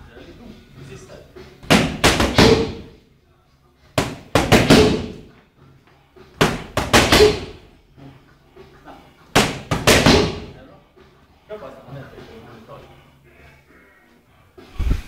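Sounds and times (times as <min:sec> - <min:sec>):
punches smacking: 0:01.6 - 0:02.9, 0:04.0 - 0:05.3, 0:06.4 - 0:07.6, 0:09.4 - 0:10.6.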